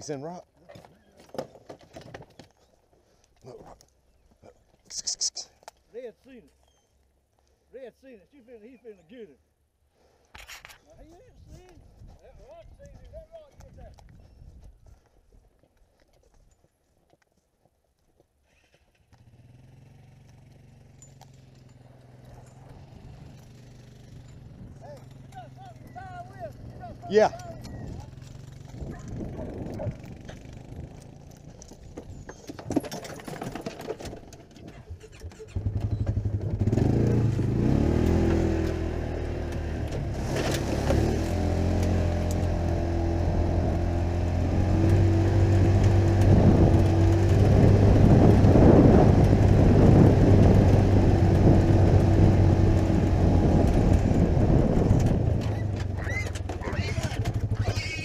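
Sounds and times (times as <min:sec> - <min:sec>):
knocks and rattles: 0:00.7 - 0:02.6, 0:26.6 - 0:37.2, 0:44.8 - 0:57.6
utility vehicle engine running: 0:19.1 - 0:58.0.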